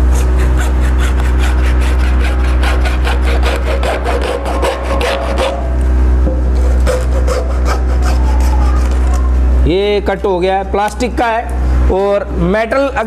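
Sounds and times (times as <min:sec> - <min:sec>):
hacksaw cutting plastic pipe: 0:00.0 - 0:05.7, 0:06.6 - 0:08.6.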